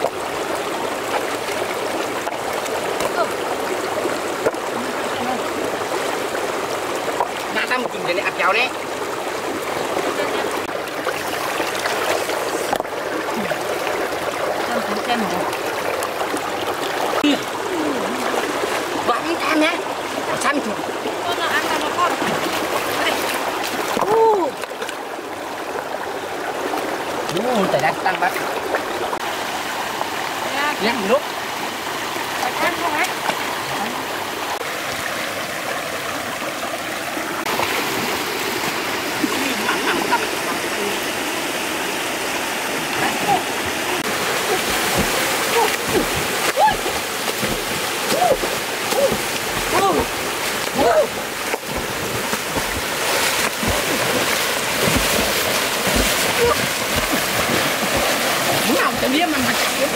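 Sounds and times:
stream flowing over rocks: 0:00.0 - 0:59.9.

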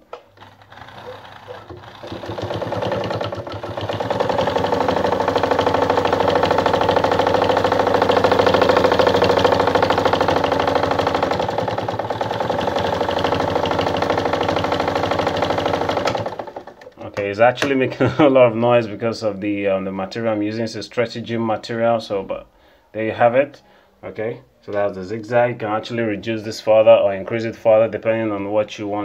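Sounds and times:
sewing machine stitching: 0:00.0 - 0:17.2.

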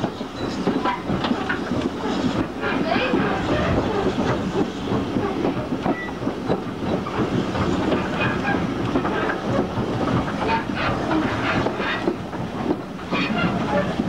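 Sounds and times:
train rumble and rattle: 0:00.0 - 0:14.0
train wheels clicking over rail joints: 0:00.0 - 0:14.0.

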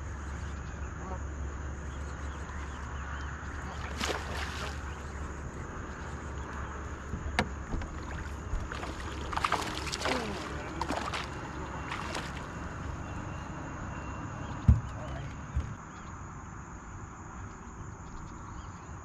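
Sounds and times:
steady low hum: 0:00.0 - 0:18.9
heavy thump: 0:14.6 - 0:15.8.

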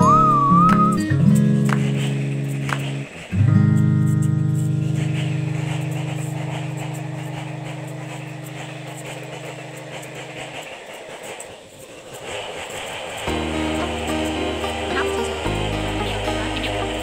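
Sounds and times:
background guitar music: 0:00.0 - 0:09.8, 0:13.3 - 0:17.0.

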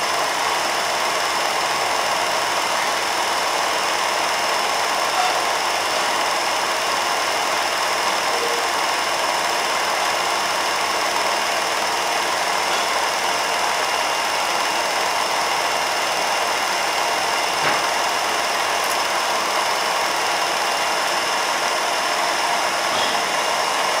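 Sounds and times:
film projector running: 0:00.0 - 0:24.0.

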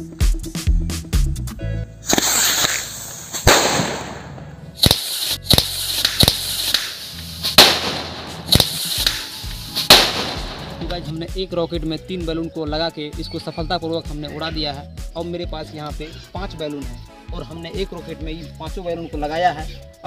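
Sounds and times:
firework rocket hissing upward: 0:02.0 - 0:10.8
firework cracks: 0:02.0 - 0:10.9.

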